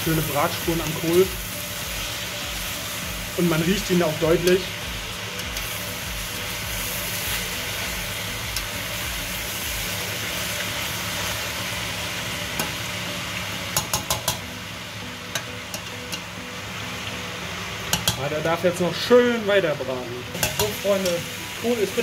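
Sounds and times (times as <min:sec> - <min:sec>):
cabbage sizzling in a pot: 0:00.0 - 0:22.0
spoon knocking against pot: 0:13.8 - 0:14.4.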